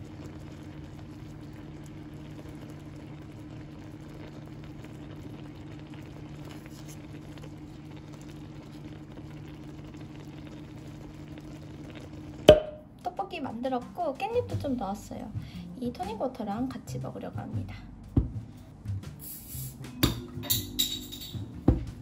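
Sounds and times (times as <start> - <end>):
sauce bubbling in a frying pan: 0.0 - 14.8
steady low hum: 0.0 - 22.0.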